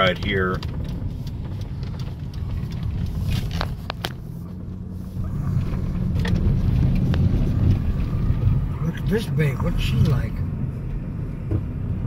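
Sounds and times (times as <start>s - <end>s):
car engine and tyres rumbling: 0.0s - 12.0s.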